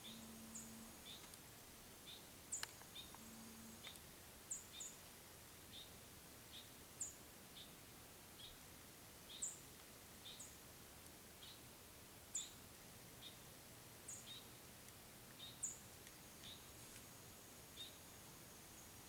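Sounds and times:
small birds chirping: 0.0s - 1.4s, 2.0s - 5.0s, 5.6s - 7.8s, 8.4s - 8.6s, 9.2s - 10.6s, 11.4s - 11.7s, 12.3s - 14.6s, 15.3s - 19.0s.

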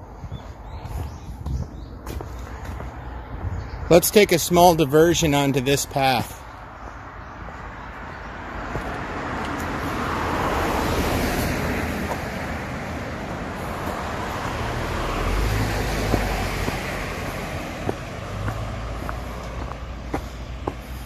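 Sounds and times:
outdoor rushing noise: 0.0s - 21.0s
footsteps on dirt path: 0.2s - 4.2s, 8.0s - 10.3s, 11.3s - 21.0s.

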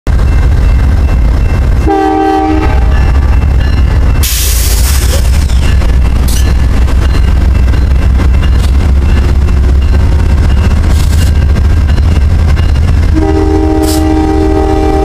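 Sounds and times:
diesel locomotive engine rumbling: 0.0s - 15.0s
multi-note air horn blast: 1.9s - 2.9s, 13.1s - 15.0s.

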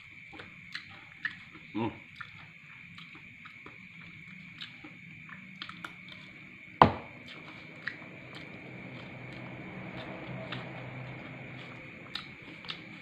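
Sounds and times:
chewing: 0.0s - 13.0s.

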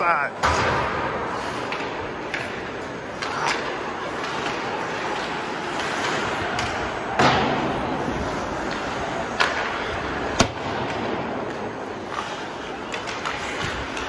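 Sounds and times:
hockey stick and puck knocks: 8.6s - 12.3s.

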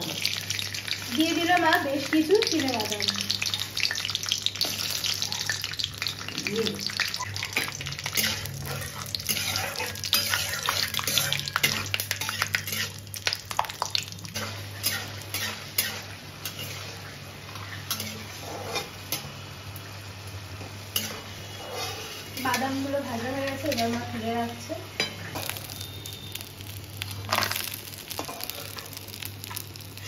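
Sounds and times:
peanuts sizzling in oil: 0.0s - 30.0s
metal spatula scraping pan: 7.6s - 13.0s, 14.4s - 17.0s, 17.9s - 19.2s, 20.9s - 24.0s.

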